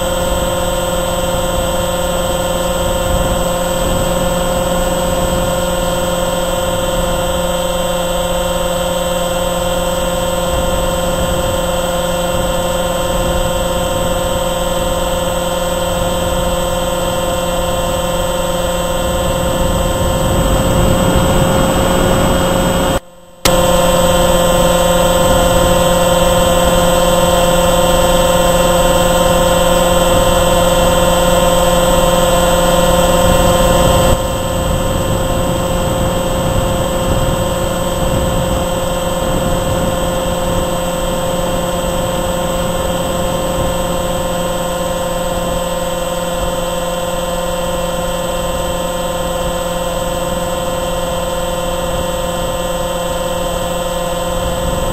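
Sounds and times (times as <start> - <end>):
model plane motor whine: 0.0 - 54.9
rushing air noise: 18.2 - 29.0.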